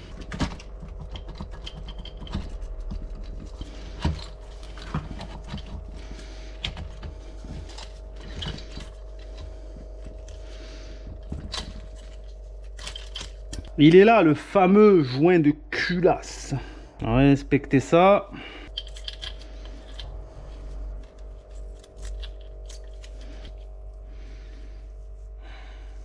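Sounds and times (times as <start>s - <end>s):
metal engine parts clicking: 0.0s - 10.4s, 11.0s - 13.8s, 18.7s - 20.2s, 21.1s - 23.6s
faint hum: 0.0s - 26.0s.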